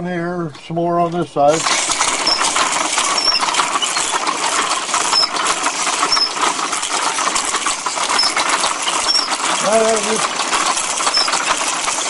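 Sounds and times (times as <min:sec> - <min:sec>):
wooden gears clattering: 0:01.5 - 0:12.0
short high squeaks: 0:01.6 - 0:06.6, 0:07.9 - 0:09.6, 0:11.0 - 0:11.6.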